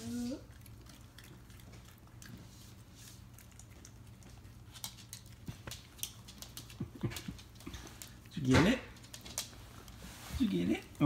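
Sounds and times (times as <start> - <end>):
dog claws clicking on wooden floor: 3.5 - 10.0.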